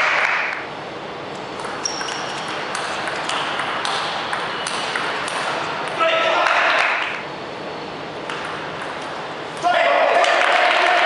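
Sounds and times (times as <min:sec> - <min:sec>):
table tennis ball hits: 0:01.6 - 0:07.2, 0:08.3 - 0:11.0.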